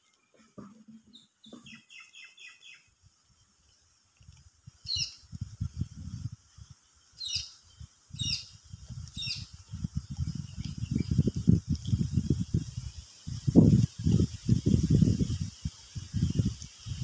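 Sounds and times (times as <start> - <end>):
bird chirping: 1.1 - 2.9, 4.9 - 5.2, 7.2 - 8.5, 9.1 - 9.6.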